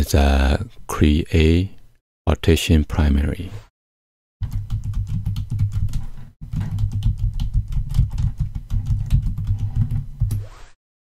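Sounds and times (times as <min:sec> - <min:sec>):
computer keyboard typing: 0:04.4 - 0:10.3.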